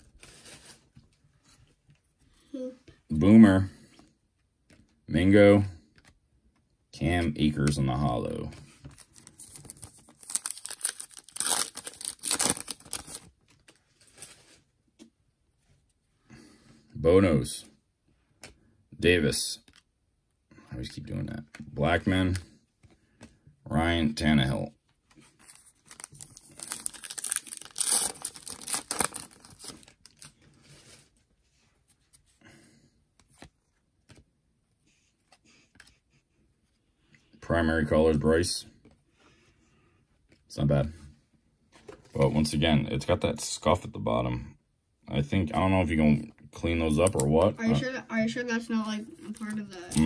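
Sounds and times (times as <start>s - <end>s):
cards being handled: 5.9s - 6.6s, 8.5s - 15.1s, 25.0s - 32.4s, 33.2s - 36.8s, 46.9s - 47.5s, 49.2s - 50.0s
foil wrapper tearing and crinkling: 9.6s - 13.3s, 25.8s - 30.3s.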